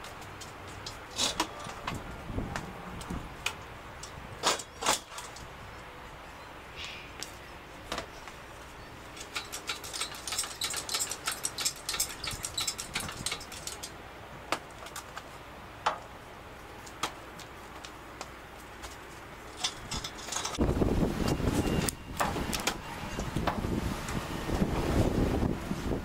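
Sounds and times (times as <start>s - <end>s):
hoist chain rattling: 9.2s - 14.0s, 19.5s - 20.6s.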